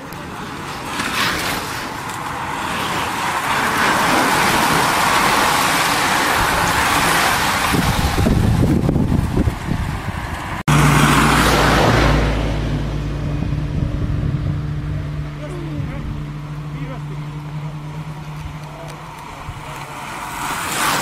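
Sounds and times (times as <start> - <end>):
car engine rumbling: 1.8 - 21.0
steady low hum: 12.5 - 20.2
bicycle tyres hissing on tarmac: 19.7 - 21.0.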